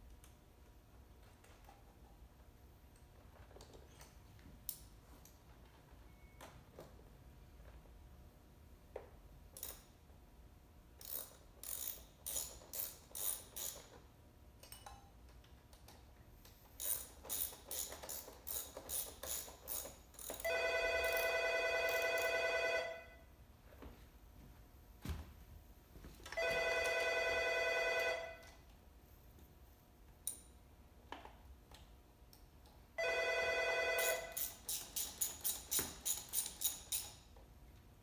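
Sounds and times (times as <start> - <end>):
ratchet wrench clicking: 9.6 - 10.0, 11.0 - 14.0, 16.4 - 20.5, 34.3 - 37.4
telephone ringing: 20.4 - 23.3, 26.4 - 28.5, 33.0 - 34.4.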